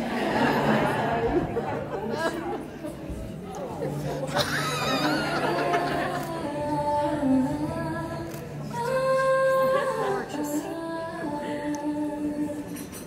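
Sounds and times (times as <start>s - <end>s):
person singing slow melody: 4.7s - 13.0s.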